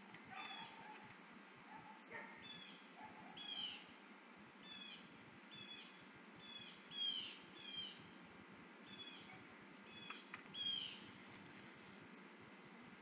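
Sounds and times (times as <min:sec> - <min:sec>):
bird calling in high calls: 0:00.3 - 0:01.0, 0:02.4 - 0:03.9, 0:04.6 - 0:08.0, 0:08.9 - 0:11.0.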